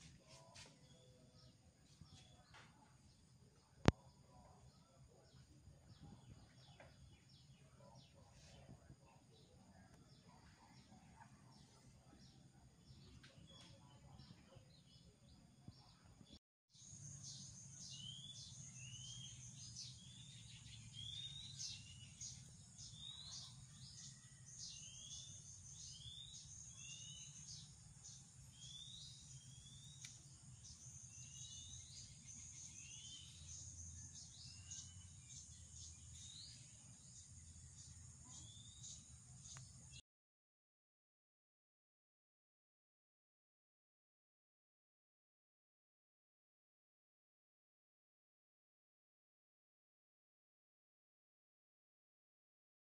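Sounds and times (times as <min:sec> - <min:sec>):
small birds chirping: 0:00.0 - 0:40.0.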